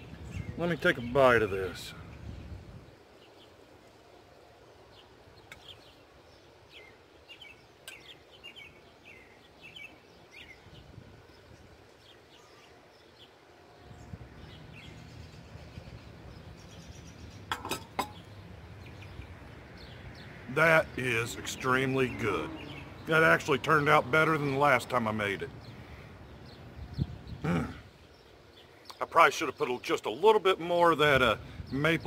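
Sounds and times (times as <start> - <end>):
wind rumble on microphone: 0.0 - 0.6, 2.0 - 3.0, 10.5 - 11.8, 13.8 - 17.5, 26.7 - 27.6
small birds chirping: 0.0 - 32.0.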